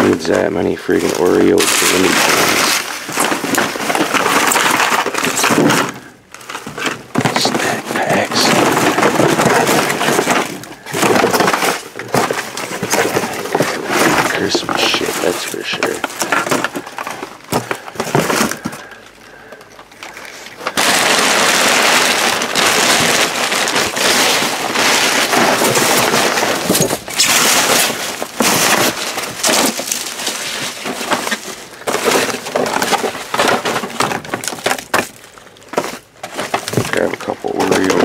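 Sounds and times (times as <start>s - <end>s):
plastic bags rustling: 0.0s - 38.0s
glass bottles and cans clinking: 19.8s - 35.0s.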